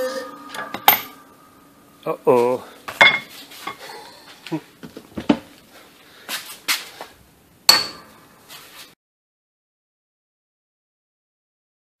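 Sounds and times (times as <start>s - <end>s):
ringing metallic clink: 0.5s - 1.2s.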